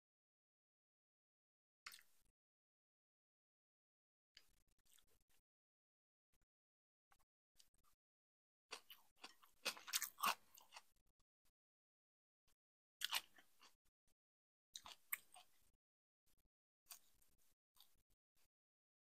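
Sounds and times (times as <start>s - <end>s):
crunching and chewing vegetables: 4.4s - 5.3s, 8.7s - 11.0s, 13.0s - 13.8s, 14.7s - 15.7s, 16.9s - 18.0s.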